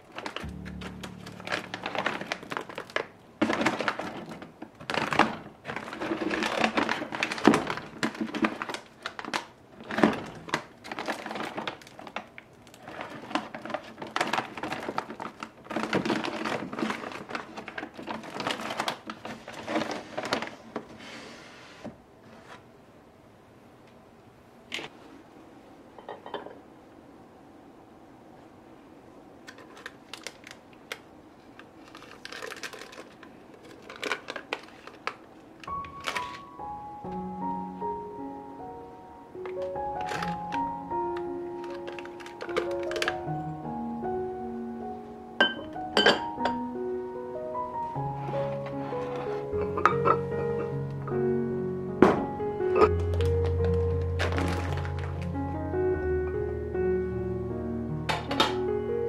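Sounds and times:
rustling: 0:00.1 - 0:22.6, 0:52.9 - 0:55.6
dishes and utensils clinking: 0:26.0 - 0:26.6, 0:45.4 - 0:46.6, 0:49.0 - 0:50.7.

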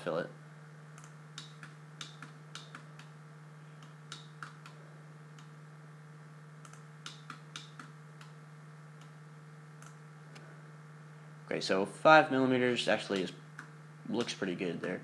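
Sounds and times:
low electrical hum: 0:00.0 - 0:15.0
computer mouse clicking: 0:01.0 - 0:03.1, 0:06.6 - 0:08.4.

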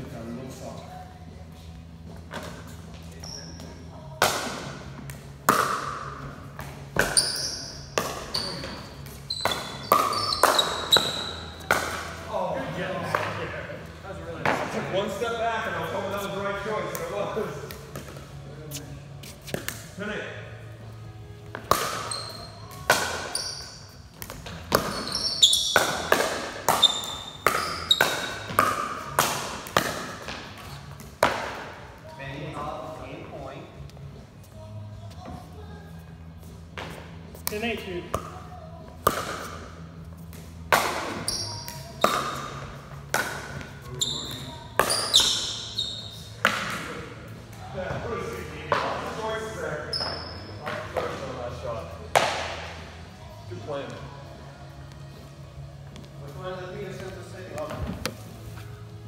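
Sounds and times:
sneakers squeaking on court: 0:02.0 - 0:03.9, 0:06.5 - 0:12.0, 0:21.4 - 0:29.2, 0:41.0 - 0:46.8, 0:49.8 - 0:50.8
ball bouncing on concrete floor: 0:02.1 - 0:12.3, 0:16.8 - 0:19.9, 0:21.4 - 0:31.8, 0:36.7 - 0:47.0, 0:52.1 - 0:52.7.

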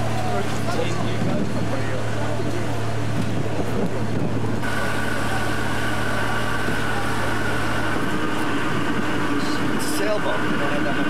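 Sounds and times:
motorboat engine humming: 0:00.0 - 0:11.0.

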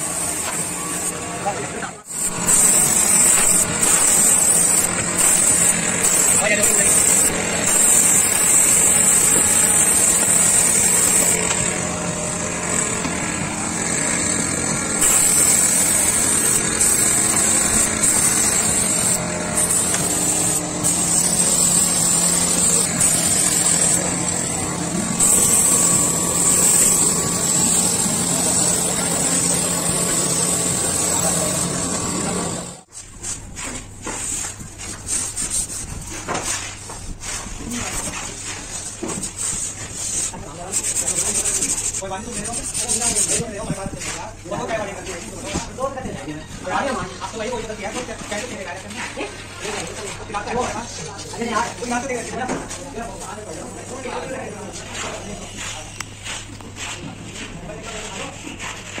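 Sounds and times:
spray gun hissing: 0:02.1 - 0:11.6, 0:14.9 - 0:32.8
hand rubbing painted panel: 0:02.2 - 0:59.0.

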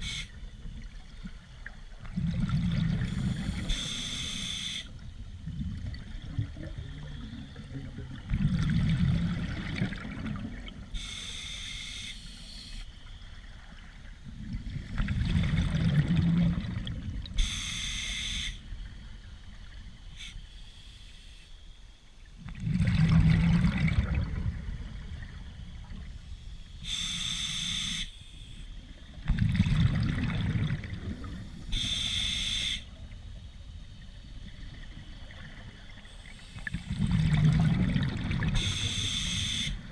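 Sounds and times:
regulator hiss on inhale: 0:00.0 - 0:00.4, 0:02.9 - 0:05.0, 0:10.9 - 0:13.0, 0:17.4 - 0:18.8, 0:20.1 - 0:22.0, 0:26.2 - 0:28.8, 0:31.4 - 0:33.0, 0:35.9 - 0:37.2, 0:38.6 - 0:39.9
exhaust bubbles rumbling: 0:02.0 - 0:03.5, 0:05.3 - 0:10.9, 0:14.3 - 0:17.4, 0:22.4 - 0:25.9, 0:29.1 - 0:31.5, 0:36.7 - 0:38.6.

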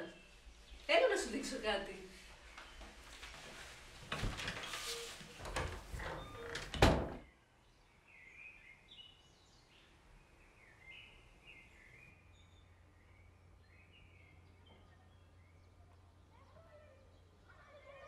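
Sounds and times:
rustling and movement: 0:02.0 - 0:07.2
faint bird chirping: 0:04.3 - 0:18.0
door closing with loud knock: 0:05.4 - 0:07.3.

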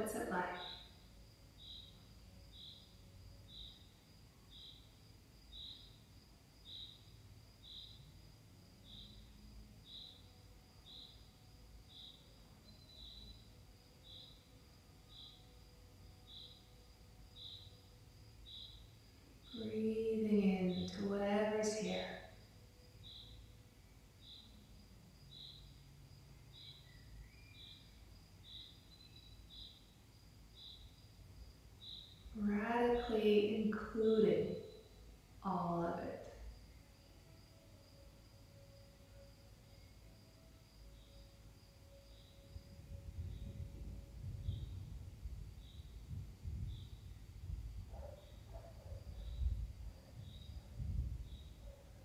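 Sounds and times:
faint high whine: 0:00.0 - 0:52.0
insect chirping: 0:00.0 - 0:52.0
faint high chirp: 0:08.8 - 0:15.5.

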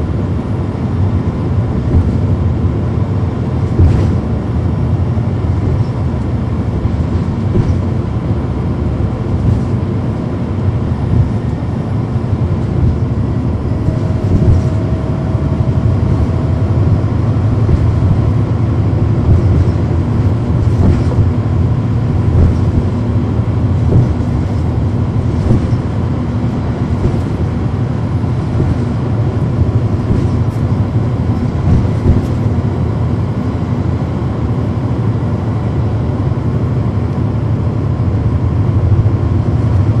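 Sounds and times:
bus engine and road rumble: 0:00.0 - 0:40.0
body rattle clicks: 0:01.8 - 0:02.4, 0:03.6 - 0:04.3, 0:07.0 - 0:08.0, 0:09.3 - 0:09.8, 0:11.1 - 0:11.8, 0:12.6 - 0:15.0, 0:15.6 - 0:27.6, 0:28.4 - 0:32.7.

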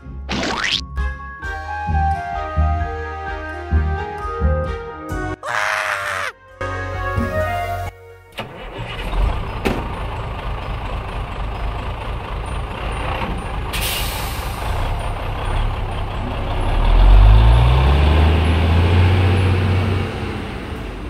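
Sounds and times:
heavy truck engine revving: 0:08.4 - 0:21.0.

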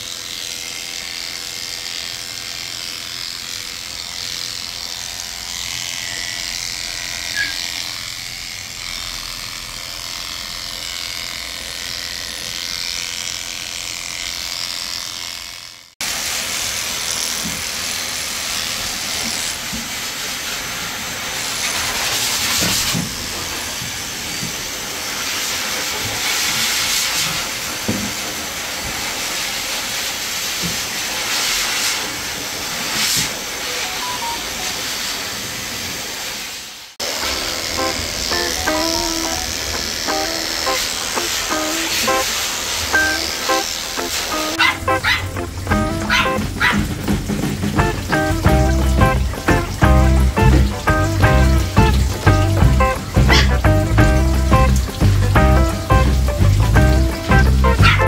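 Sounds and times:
electric clippers running: 0:00.0 - 0:36.4, 0:37.0 - 0:58.0
hissy running sound: 0:16.0 - 0:58.0.

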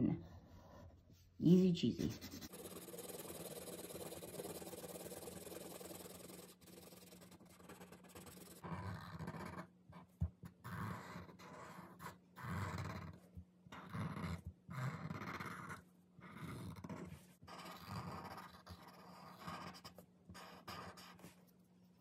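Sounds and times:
marker scratching on paper: 0:01.9 - 0:10.2, 0:10.8 - 0:12.2, 0:16.8 - 0:22.0.

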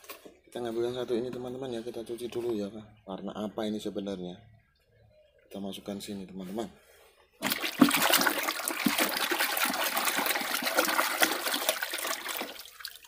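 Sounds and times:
water sloshing in a tub: 0:07.3 - 0:13.0.

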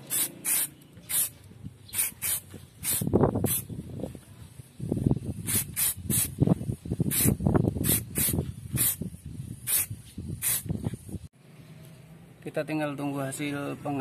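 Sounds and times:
spray can hissing bursts: 0:00.0 - 0:03.8, 0:04.7 - 0:11.2.

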